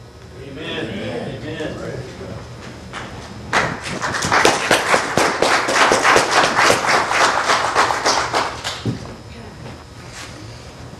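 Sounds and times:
congregation applauding: 3.5 - 8.9.

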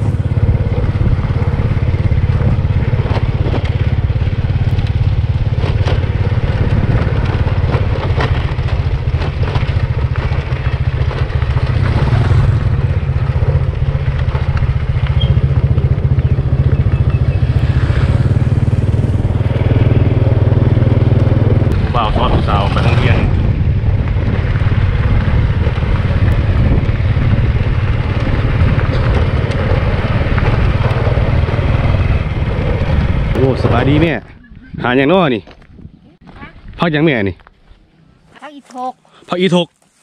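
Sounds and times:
motorcycle engine running: 0.0 - 36.8
clatter and knocks: 2.2 - 12.3, 28.2 - 31.4.

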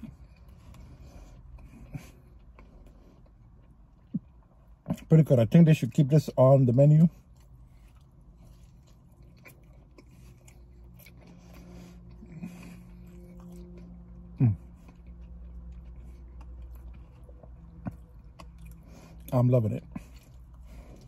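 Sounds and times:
man chewing food: 0.0 - 5.1, 7.1 - 21.0
low steady hum: 0.0 - 21.0.

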